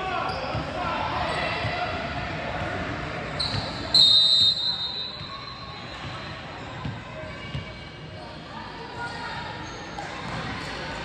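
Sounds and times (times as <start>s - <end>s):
referee's whistle blasts: 3.4s - 5.8s.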